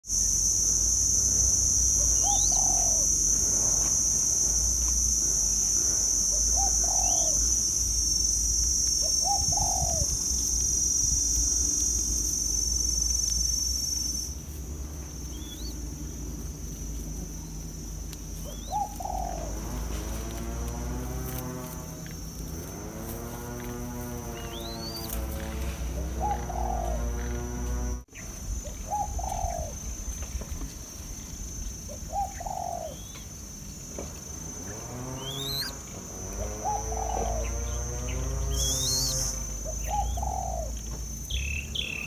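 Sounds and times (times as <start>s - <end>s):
high-pitched insect drone: 0.0s - 42.0s
small bird chirping: 1.1s - 14.3s, 15.2s - 16.2s, 17.4s - 21.6s, 22.6s - 27.5s, 28.1s - 30.0s, 31.6s - 33.3s, 34.7s - 42.0s
dove cooing: 2.0s - 4.6s, 5.2s - 7.6s, 9.0s - 10.2s, 18.4s - 21.4s, 22.6s - 28.0s, 28.6s - 29.8s, 31.9s - 33.2s, 34.7s - 40.8s.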